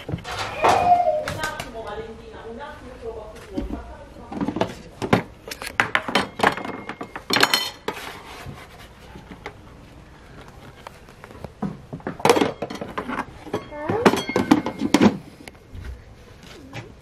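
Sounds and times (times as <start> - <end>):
kitchen utensils clinking and knocking: 0.0 - 1.5, 4.3 - 8.1, 11.9 - 15.2.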